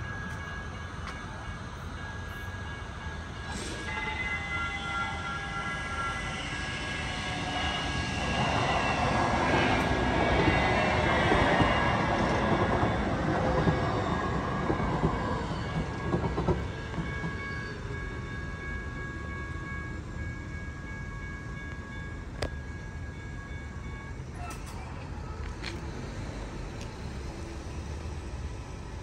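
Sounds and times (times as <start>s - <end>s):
crossing warning bell ringing: 0.0s - 29.0s
light-rail train passing: 0.0s - 29.0s
train wheel clacks: 9.6s - 17.4s.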